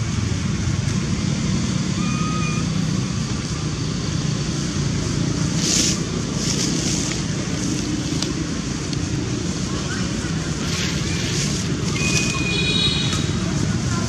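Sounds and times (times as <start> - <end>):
low rumbling background noise: 0.0 - 14.0
dry rustle: 5.4 - 8.6, 10.2 - 12.6.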